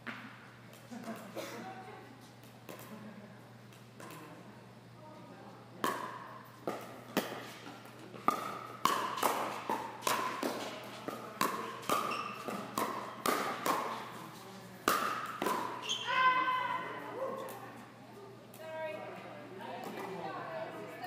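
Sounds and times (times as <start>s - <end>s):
ball bouncing on court: 3.7s - 4.3s, 5.8s - 14.2s, 14.8s - 16.0s
plastic ball popping off paddles: 8.2s - 14.0s, 14.8s - 15.8s.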